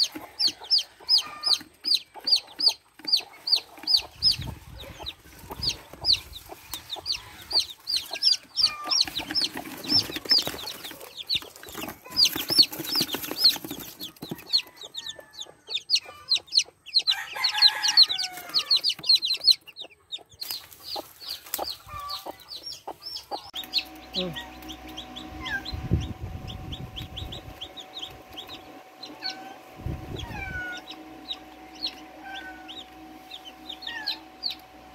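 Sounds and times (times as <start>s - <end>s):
chicks peeping: 0.0s - 34.9s.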